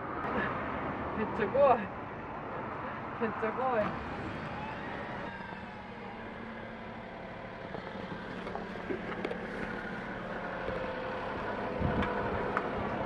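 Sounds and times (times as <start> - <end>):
vehicle engine running: 3.9 - 13.0.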